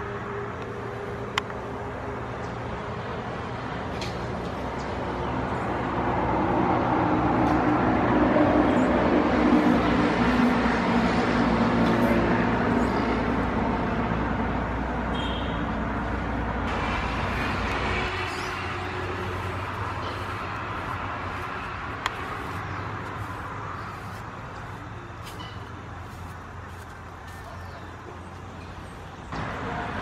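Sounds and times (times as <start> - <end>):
vehicle engine and road noise: 0.0 - 30.0.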